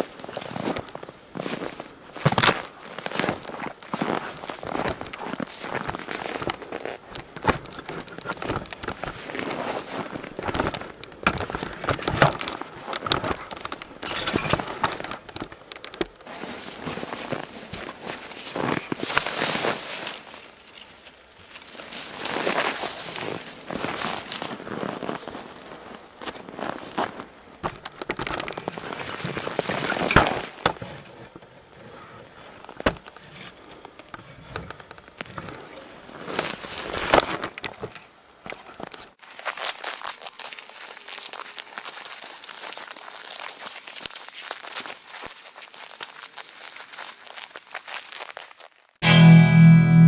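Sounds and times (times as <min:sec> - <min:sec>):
footsteps crunching in snow: 0:00.0 - 0:13.7, 0:16.3 - 0:27.3, 0:39.2 - 0:49.0
close handling noise: 0:00.0 - 0:32.0
rustling brush: 0:39.2 - 0:48.8.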